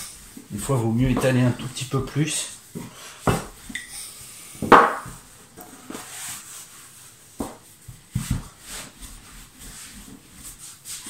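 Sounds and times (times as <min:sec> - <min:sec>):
rolling pin rolling pastry: 0:00.0 - 0:03.8, 0:04.6 - 0:11.0
rolling pin knocking on worktop: 0:04.6 - 0:05.2.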